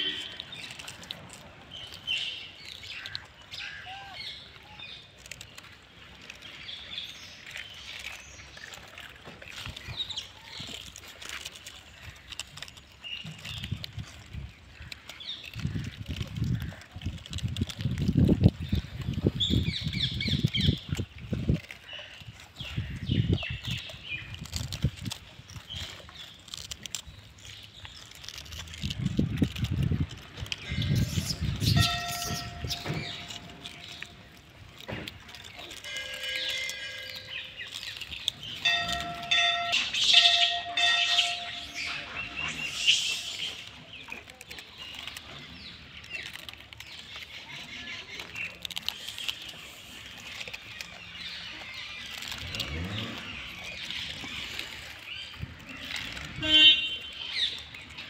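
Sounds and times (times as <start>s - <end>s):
birds chirping: 29.6s - 58.0s
high chirping calls: 30.5s - 34.4s, 35.8s - 44.2s.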